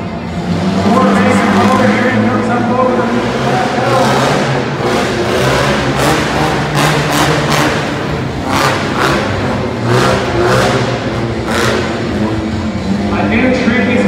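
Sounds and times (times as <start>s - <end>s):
mini monster truck engine revving: 2.9s - 12.9s.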